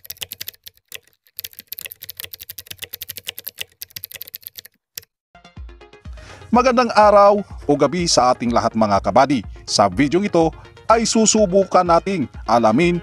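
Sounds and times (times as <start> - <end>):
rapid keyboard typing clicks: 0.0 - 5.1.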